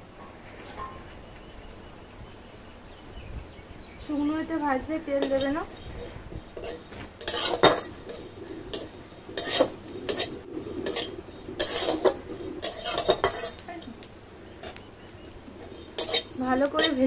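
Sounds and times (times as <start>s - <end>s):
metal spatula scraping seeds in pan: 5.0s - 13.9s, 15.5s - 17.0s.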